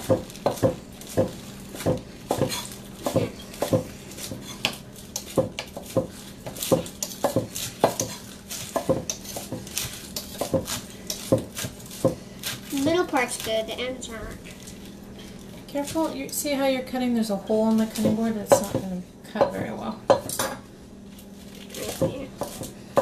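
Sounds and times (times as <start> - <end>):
knife chopping on cutting board: 0.0 - 12.7, 17.9 - 20.5, 21.9 - 23.0.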